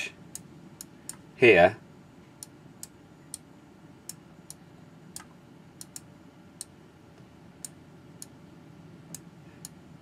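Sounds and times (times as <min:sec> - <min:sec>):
faint room hum: 0:00.0 - 0:10.0
computer mouse clicking: 0:00.3 - 0:01.2, 0:02.4 - 0:08.4.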